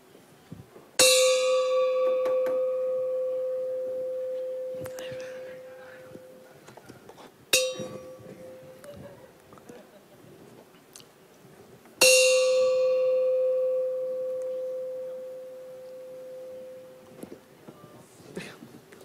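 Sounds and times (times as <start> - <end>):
bucket ringing bell-like clang: 1.0 - 6.4, 7.5 - 8.8, 12.0 - 17.0.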